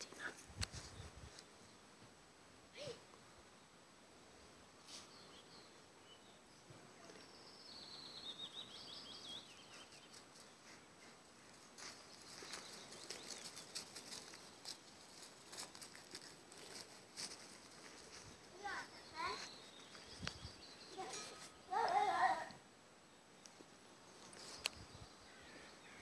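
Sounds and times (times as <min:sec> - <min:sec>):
small bird chirping trill: 0:05.1 - 0:10.5, 0:18.6 - 0:22.1
crackling of dry leaves: 0:10.1 - 0:22.6.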